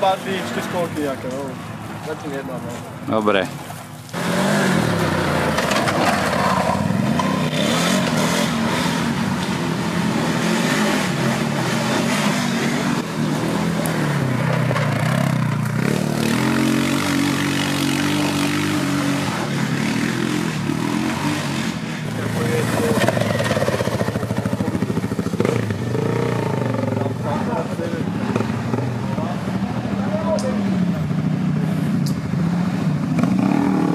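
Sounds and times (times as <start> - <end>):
quad bike engines revving: 0.0 - 33.9.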